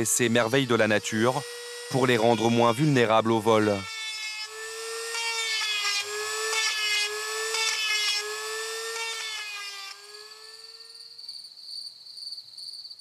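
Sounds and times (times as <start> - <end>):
electric engraving tool whining: 0.0 - 11.2.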